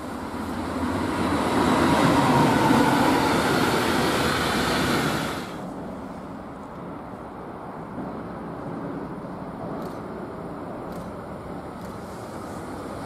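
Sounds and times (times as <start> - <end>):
train wheels rumbling: 0.0 - 6.1
freight train rolling past: 0.0 - 13.0.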